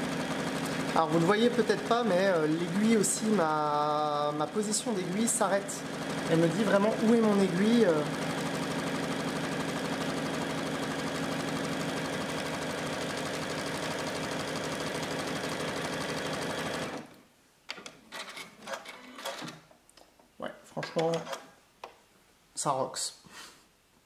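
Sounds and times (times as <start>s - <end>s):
sewing machine running: 0.0s - 17.2s.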